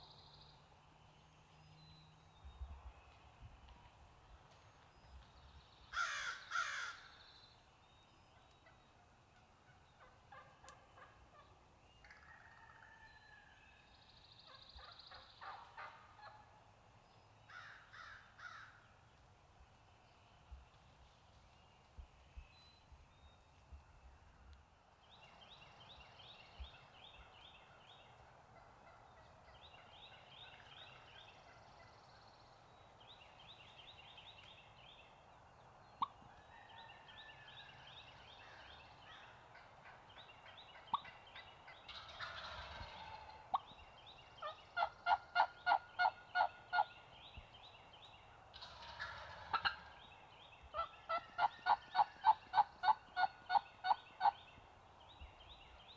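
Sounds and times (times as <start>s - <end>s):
songbirds singing: 0.0s - 55.9s
turkey gobbling: 40.7s - 43.7s, 44.4s - 46.9s, 48.5s - 50.0s, 50.8s - 54.4s
turkey yelps: 44.4s - 46.9s, 48.6s - 49.9s.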